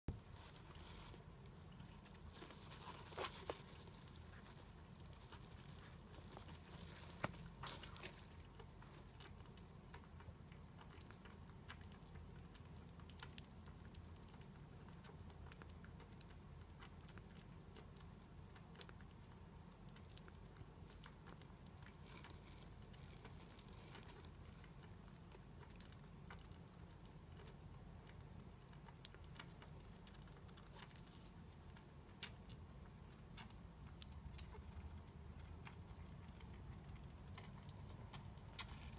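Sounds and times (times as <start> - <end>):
low steady hum: 0.0 - 38.9.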